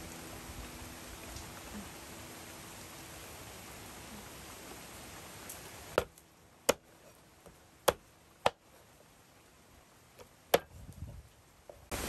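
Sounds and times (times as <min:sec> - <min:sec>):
cleaver chopping on wooden board: 0:07.9 - 0:08.6.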